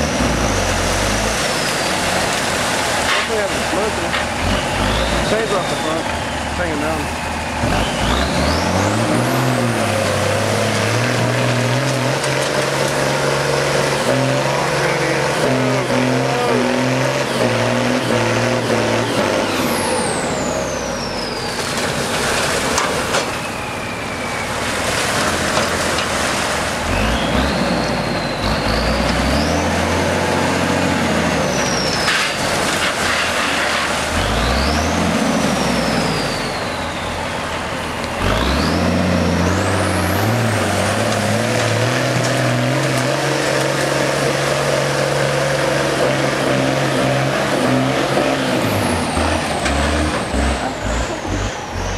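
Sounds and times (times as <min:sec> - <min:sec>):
diesel truck engine revving: 0:00.0 - 0:51.9
high whistle sweeping: 0:23.3 - 0:24.7.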